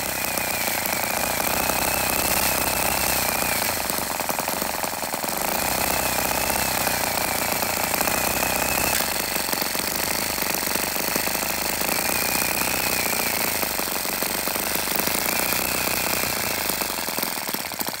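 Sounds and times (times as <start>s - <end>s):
model tractor engine rattling: 0.0s - 18.0s.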